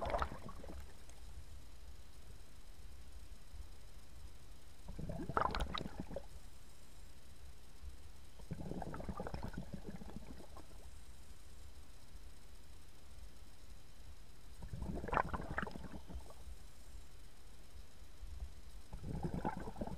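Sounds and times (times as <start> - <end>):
diver's exhaled bubbles: 0.0 - 0.9, 4.9 - 6.2, 8.4 - 10.7, 14.6 - 16.4, 18.9 - 19.9.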